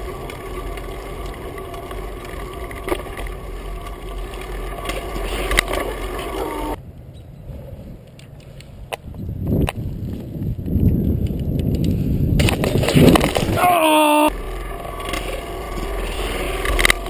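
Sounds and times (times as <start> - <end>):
bicycle road rumble: 0.0 - 17.0
wind noise: 4.2 - 17.0.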